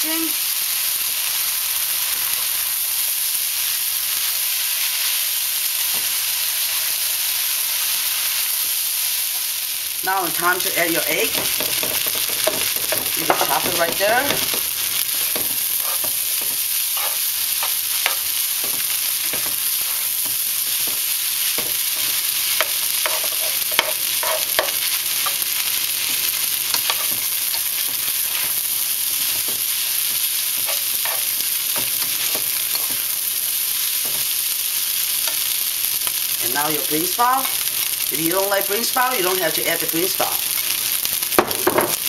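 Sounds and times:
rice sizzling in a frying pan: 0.0s - 42.0s
spatula scraping and tapping pan: 11.3s - 28.6s, 29.2s - 33.0s.

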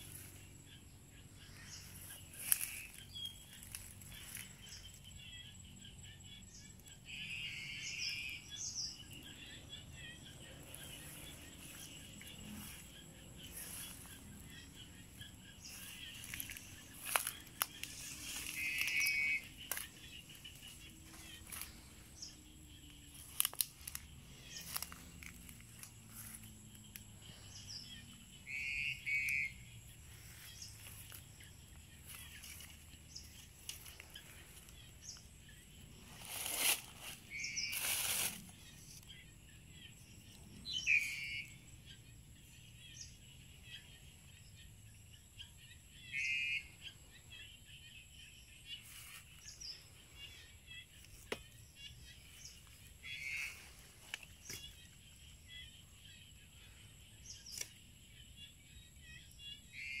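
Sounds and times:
high insect drone: 0.0s - 60.0s
bird call: 1.4s - 25.5s, 27.2s - 31.2s, 40.3s - 41.6s, 48.2s - 57.8s.

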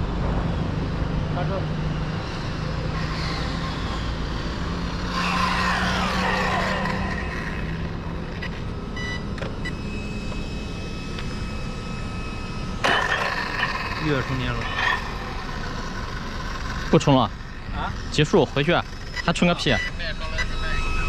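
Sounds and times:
electric rc car motor whine: 2.0s - 21.0s
short high beeps: 19.1s - 21.0s.

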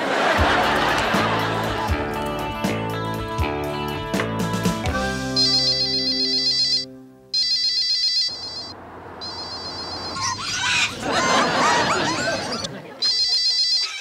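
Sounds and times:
background music: 0.0s - 7.5s
cordless telephone warbling ring: 7.4s - 10.4s, 13.1s - 14.0s.

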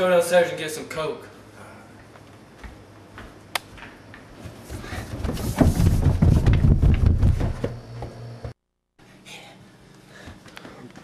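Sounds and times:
footsteps running down stairs: 2.0s - 8.6s.

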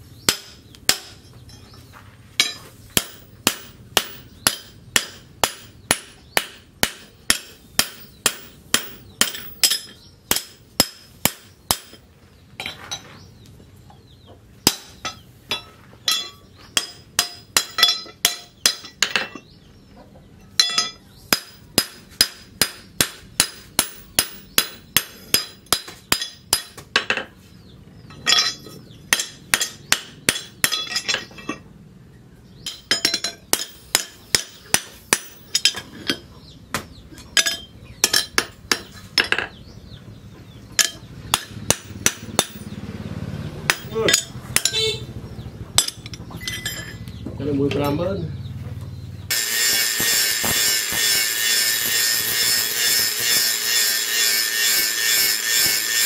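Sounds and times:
hammer striking metal on anvil: 0.3s - 1.7s, 2.4s - 12.0s, 14.7s - 19.5s, 20.6s - 27.3s, 28.1s - 31.6s, 32.6s - 35.9s, 36.7s - 39.6s, 40.8s - 42.8s, 43.7s - 45.0s, 45.8s - 47.0s, 49.3s - 56.0s.

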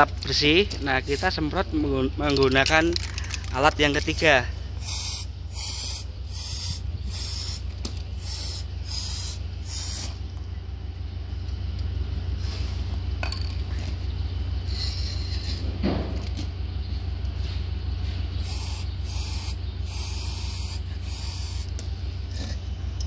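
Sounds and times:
steady low hum: 0.0s - 23.0s
aerosol can spraying: 4.8s - 7.6s, 8.2s - 10.2s, 18.4s - 21.7s.

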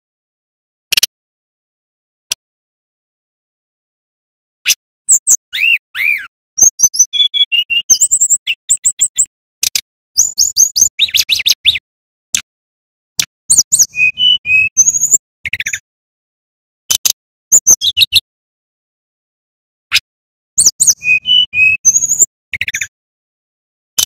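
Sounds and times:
bird singing whistles and trills: 5.1s - 9.3s, 10.2s - 11.8s, 13.5s - 15.8s, 17.0s - 18.2s, 19.9s - 22.9s.

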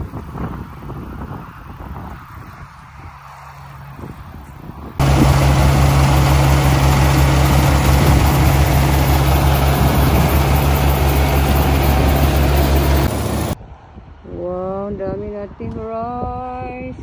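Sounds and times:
combine harvester engine hum: 3.2s - 13.6s
machinery rushing noise: 5.0s - 13.6s.

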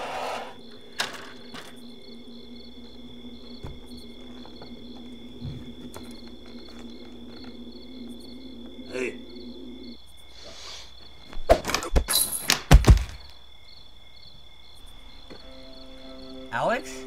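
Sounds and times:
crickets chirping: 0.0s - 17.0s
low steady hum: 0.6s - 10.0s.

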